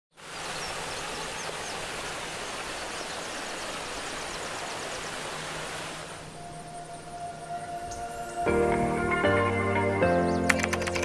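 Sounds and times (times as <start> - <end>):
water rushing over rocks: 0.2 - 6.4.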